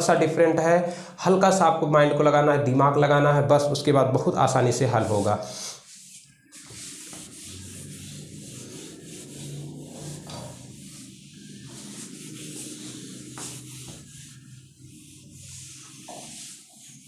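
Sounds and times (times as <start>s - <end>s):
eraser scrubbing a whiteboard: 4.5s - 17.0s.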